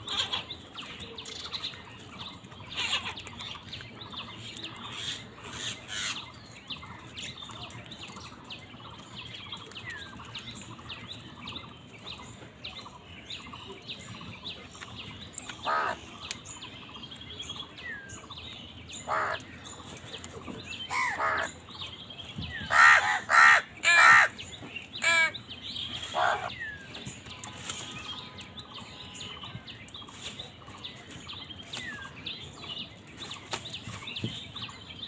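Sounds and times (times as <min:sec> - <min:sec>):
crows chattering and cawing: 0:00.0 - 0:01.6, 0:02.2 - 0:07.5, 0:15.3 - 0:16.6, 0:18.9 - 0:21.9, 0:22.5 - 0:27.7.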